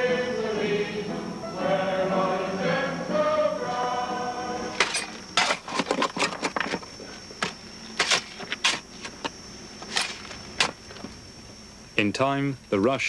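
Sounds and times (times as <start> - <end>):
spade scraping gravel: 4.7 - 11.1.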